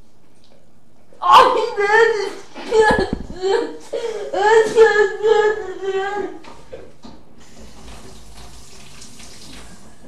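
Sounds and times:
tap water running into sink: 7.6s - 10.0s.

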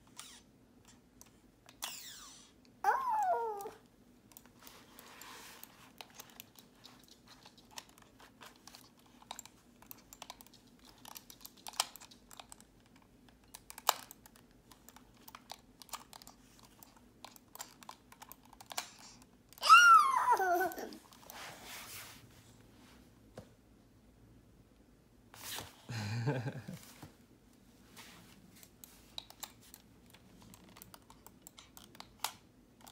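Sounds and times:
dog whining: 1.9s - 3.8s, 19.6s - 21.0s
computer mouse clicks: 5.6s - 19.3s, 28.6s - 32.9s.

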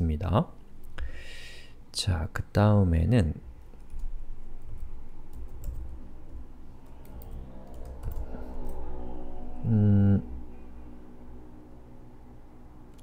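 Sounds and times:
brief low hum: 5.3s - 13.0s
keyboard and mouse clicks: 6.8s - 8.8s.

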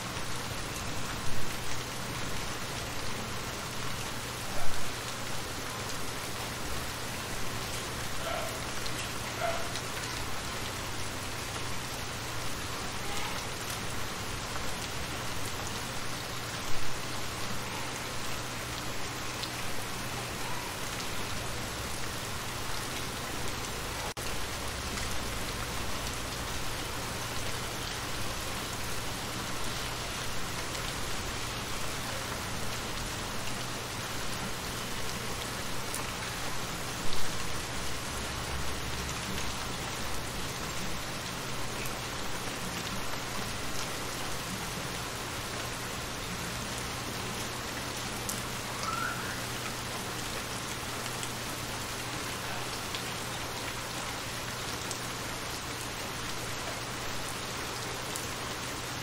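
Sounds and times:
rain falling into shallow water: 0.0s - 59.0s.

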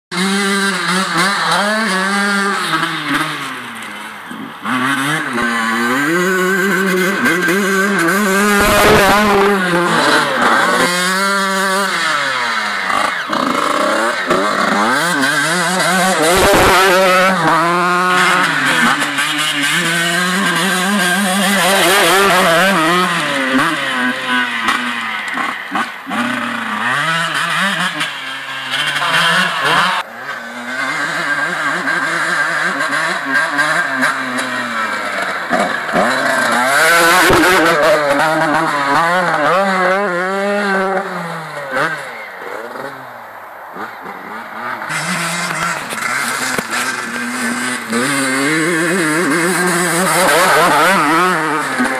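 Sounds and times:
motorbike engine revving: 0.1s - 51.9s.

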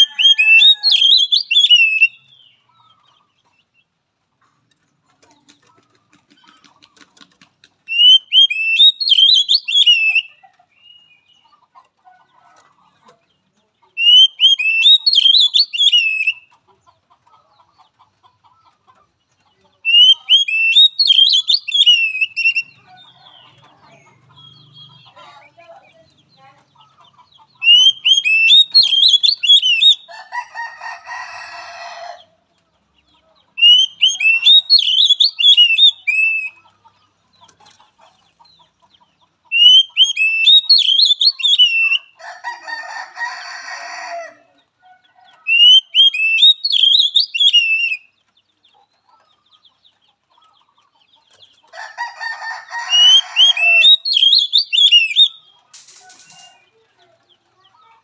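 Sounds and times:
bird whistled song: 0.0s - 2.6s, 7.8s - 11.3s, 14.0s - 16.5s, 19.8s - 23.5s, 27.6s - 30.1s, 33.6s - 36.6s, 39.5s - 42.1s, 45.5s - 48.2s, 52.9s - 55.6s.

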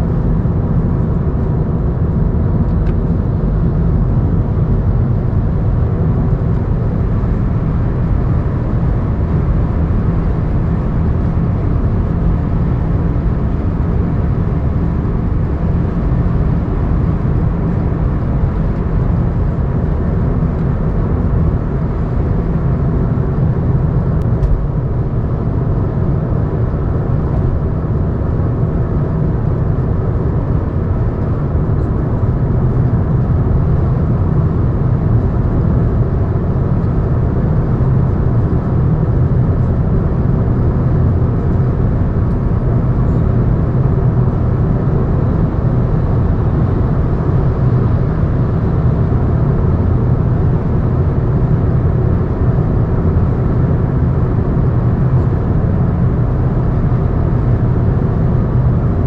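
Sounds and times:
vehicle road and wind rumble: 0.0s - 59.0s.

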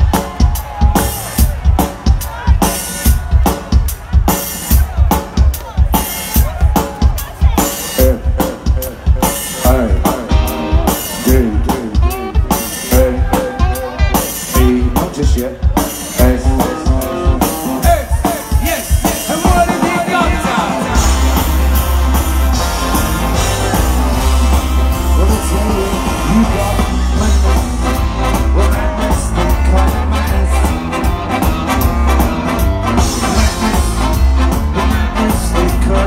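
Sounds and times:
live ska band playing: 0.0s - 36.0s
pounding drum-kit rhythm: 0.0s - 36.0s
heavy steady bass: 20.2s - 36.0s.

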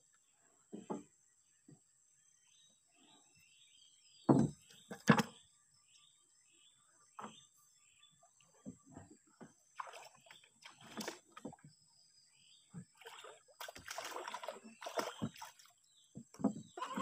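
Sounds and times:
fish splashing at water surface: 13.0s - 15.6s.

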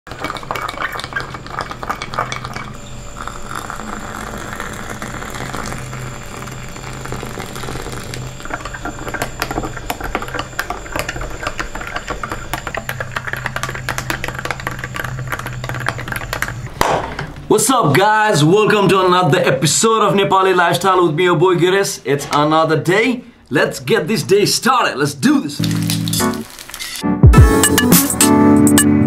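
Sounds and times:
spoon clinking in glass cup: 0.1s - 5.2s
milk pouring: 0.1s - 16.8s, 25.7s - 27.0s.

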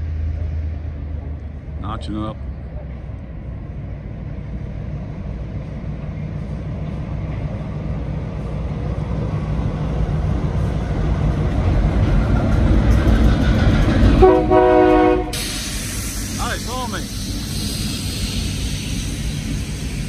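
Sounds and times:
diesel locomotive engine rumble: 0.0s - 20.0s
train horn blast: 14.2s - 15.4s.

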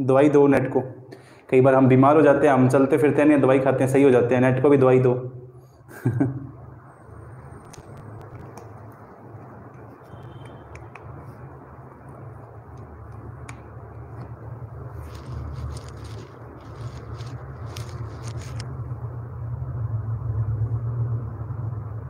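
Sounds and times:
low steady rumble: 5.2s - 22.0s.

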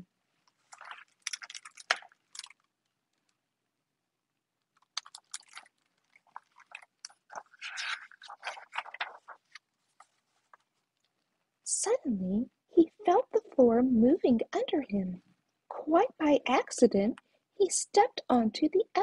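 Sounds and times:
book pages turning and rustling: 0.4s - 3.4s, 4.6s - 11.5s.

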